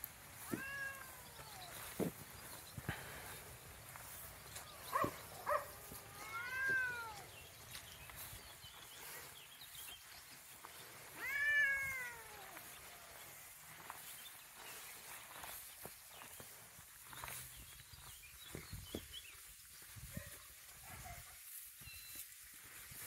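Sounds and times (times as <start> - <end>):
cat meowing: 0.4 - 1.9, 5.8 - 7.3, 11.2 - 12.6.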